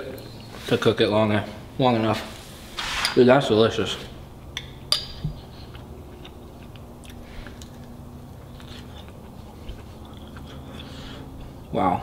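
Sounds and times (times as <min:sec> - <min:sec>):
person chewing food: 0:05.1 - 0:11.7.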